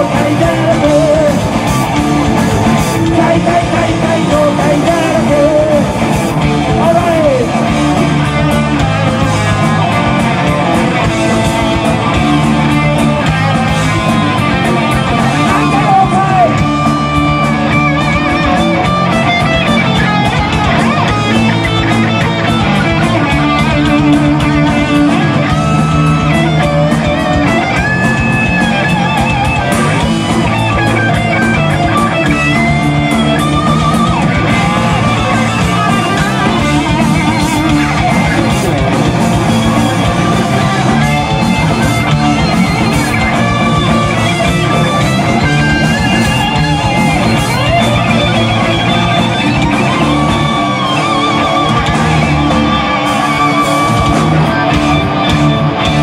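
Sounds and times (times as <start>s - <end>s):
heavy metal band playing: 0.0s - 56.0s
lead guitar bent notes: 0.0s - 56.0s.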